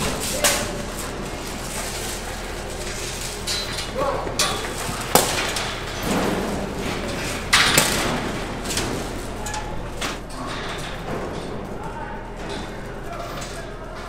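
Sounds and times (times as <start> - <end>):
low barn hum: 0.0 - 14.0.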